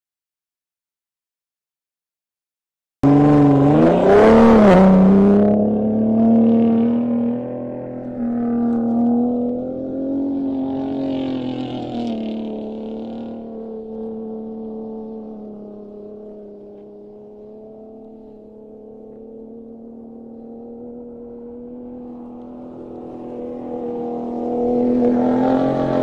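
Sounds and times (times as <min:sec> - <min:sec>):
pickup truck engine revving: 0:03.0 - 0:13.6, 0:20.4 - 0:26.0.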